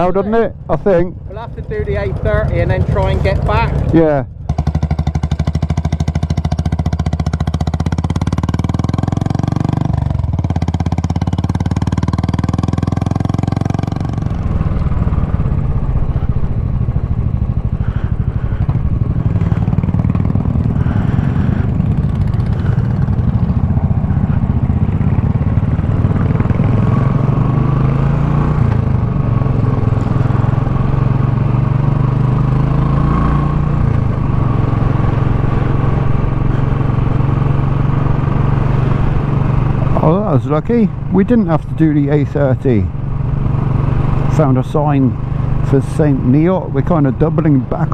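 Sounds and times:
motorcycle engines idling: 0.0s - 27.0s, 33.7s - 47.9s
motorcycle riding on road: 0.0s - 47.9s.

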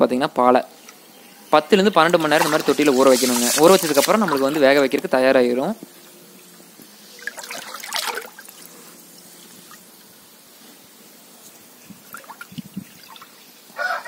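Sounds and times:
loud water splash: 2.0s - 4.9s, 7.2s - 8.5s
water trickling and dripping: 7.2s - 8.8s, 11.9s - 13.5s
rooster crowing: 13.7s - 14.0s.

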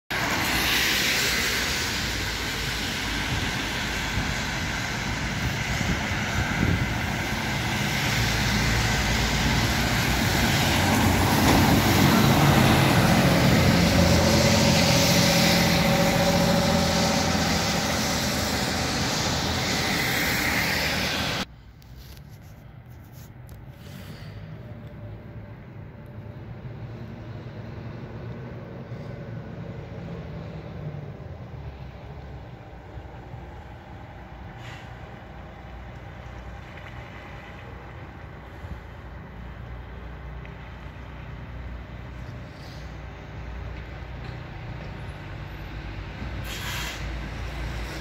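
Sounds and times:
fire engine diesel engine passing: 0.1s - 21.5s, 23.6s - 48.0s
quiet street background: 0.1s - 48.0s
traffic on wet road: 0.1s - 48.0s
tyre hiss on wet surface: 46.4s - 48.0s.

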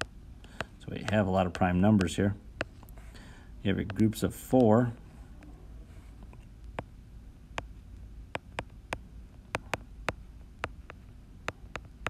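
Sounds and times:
faint low hum: 0.0s - 12.0s
stylus tapping on glass screen: 3.8s - 4.8s, 8.3s - 12.0s.

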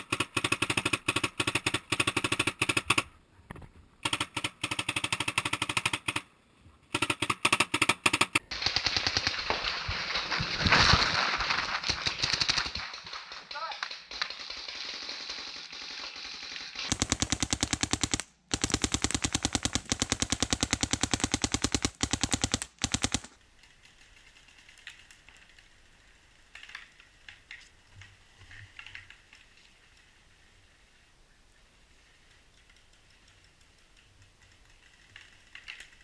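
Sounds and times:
paintball marker rapid firing: 0.0s - 3.1s, 4.0s - 6.3s, 6.9s - 9.6s, 11.5s - 23.4s
faint clicks: 31.9s - 36.0s.

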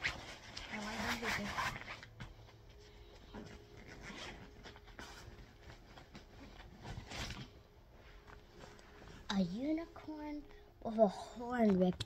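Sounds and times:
backpack fabric rustling: 3.2s - 9.4s.

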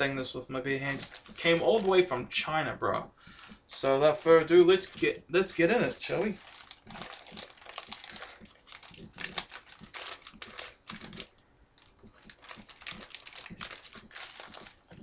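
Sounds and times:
plastic packaging crinkling: 0.8s - 2.1s, 4.8s - 15.0s
plastic packaging tearing: 0.9s - 2.0s, 6.0s - 15.0s.

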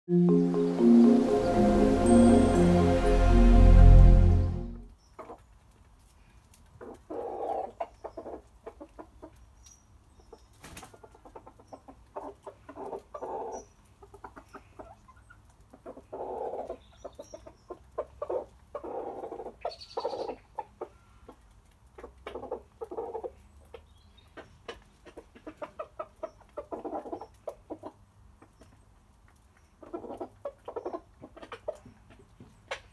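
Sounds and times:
chickens clucking: 5.1s - 5.8s, 6.7s - 9.5s, 10.3s - 32.9s.

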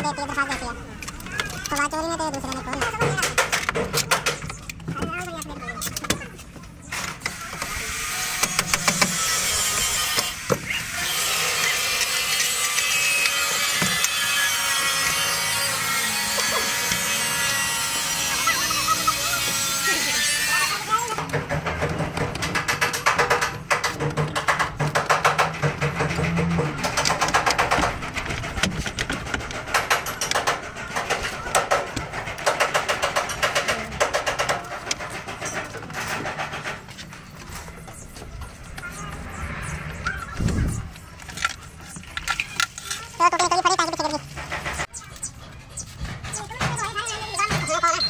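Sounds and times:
continuous rasping tool noise: 0.0s - 47.9s
rapid knocking and clattering: 21.2s - 37.4s.

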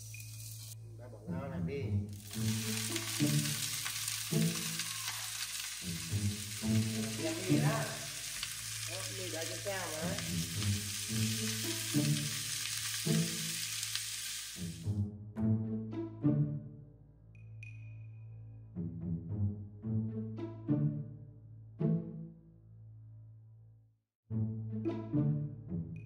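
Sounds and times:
noodles sizzling in a hot pan: 0.0s - 0.8s, 2.1s - 14.9s
background music with low notes: 0.7s - 4.8s, 5.8s - 13.9s, 14.6s - 23.1s, 24.3s - 26.0s.

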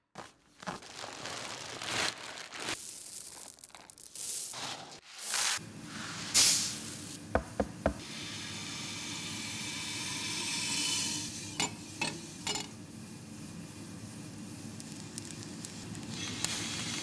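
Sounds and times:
beans sliding hiss: 2.6s - 7.2s, 14.7s - 17.0s
coffee beans pouring into metal bowl: 2.7s - 5.6s.

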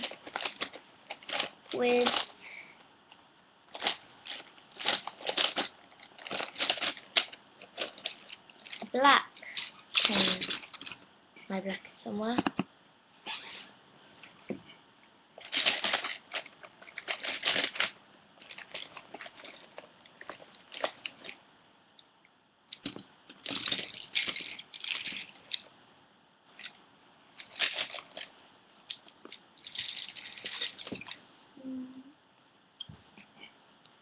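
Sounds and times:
pens and pencils clattering: 0.0s - 2.4s, 3.1s - 11.1s, 15.4s - 21.4s, 22.7s - 25.7s, 27.4s - 31.2s.

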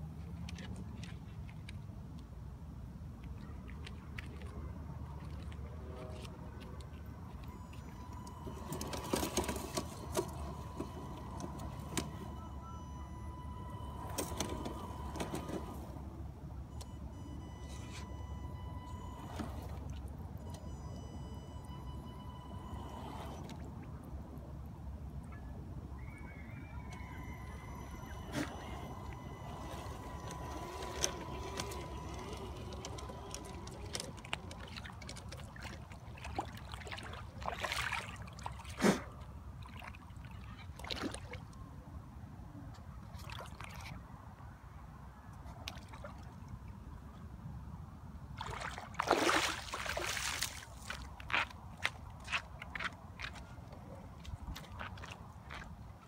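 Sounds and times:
water lapping and trickling: 3.1s - 47.5s, 48.2s - 56.0s
faint high tone: 25.3s - 33.8s
small electric motor whining: 27.0s - 34.1s
light water splashes: 28.2s - 41.7s, 42.7s - 44.5s, 45.3s - 47.0s, 48.3s - 53.4s.

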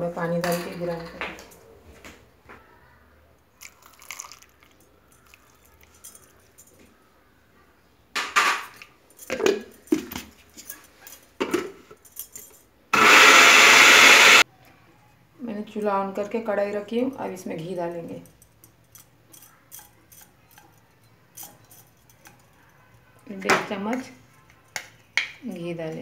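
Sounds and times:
water pouring into jar: 3.6s - 6.2s
glass jar clattering: 8.6s - 12.6s
blender motor grinding: 13.0s - 14.4s.

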